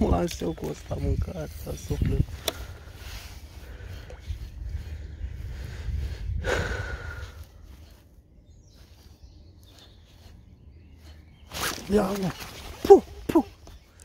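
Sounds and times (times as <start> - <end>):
wind rumble on microphone: 0.0 - 10.2.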